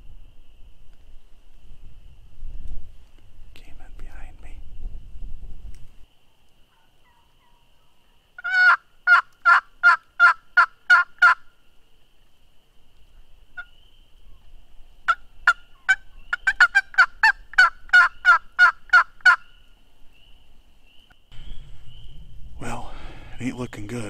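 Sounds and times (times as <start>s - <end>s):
turkey yelps: 6.7s - 11.4s, 15.1s - 19.4s.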